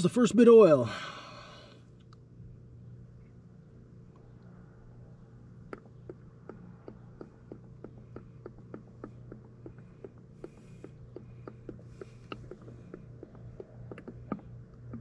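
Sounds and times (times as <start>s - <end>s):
faint low hum: 0.0s - 15.0s
oil glugging through a funnel: 5.6s - 15.0s.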